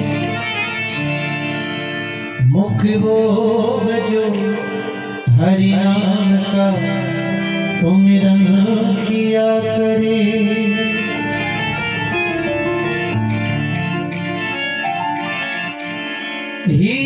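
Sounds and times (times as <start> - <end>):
harmonium: 0.0 - 17.0
man singing: 2.4 - 11.4, 16.6 - 17.0.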